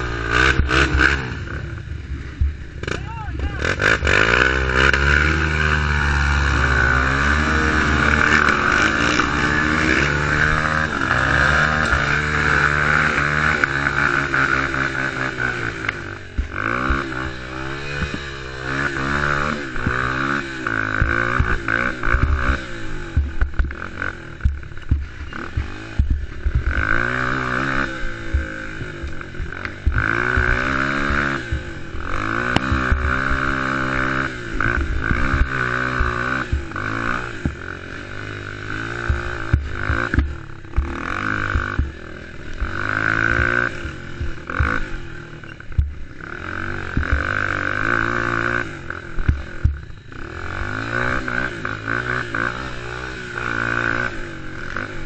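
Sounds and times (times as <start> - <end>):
quad engine revving: 0.0 - 55.0
knocks and rattles over bumps: 6.4 - 37.9, 38.5 - 46.1, 46.8 - 49.9.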